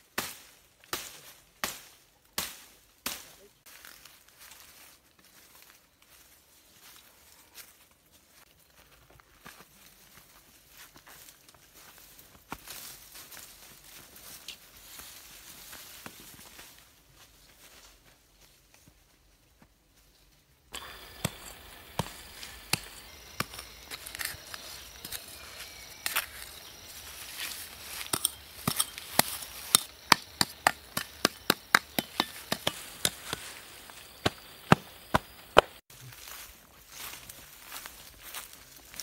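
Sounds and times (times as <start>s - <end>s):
hand trowel chopping into dry soil: 20.7s - 35.8s.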